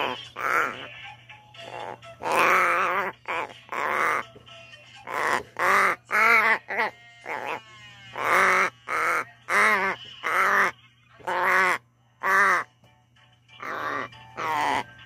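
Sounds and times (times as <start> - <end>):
crow cawing: 0.0 - 0.9, 1.7 - 4.2, 5.1 - 7.6, 8.2 - 12.7, 13.6 - 14.8.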